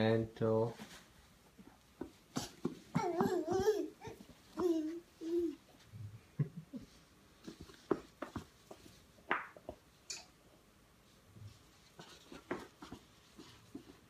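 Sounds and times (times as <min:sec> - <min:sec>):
baby crawling on rug: 0:11.5 - 0:14.0.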